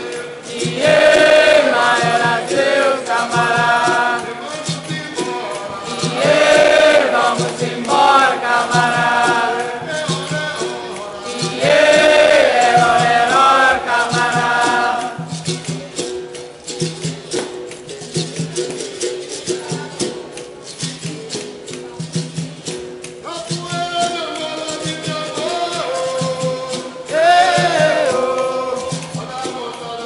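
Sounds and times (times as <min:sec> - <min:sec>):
group singing: 0:00.0 - 0:16.2, 0:24.3 - 0:30.0
berimbau playing: 0:00.0 - 0:30.0.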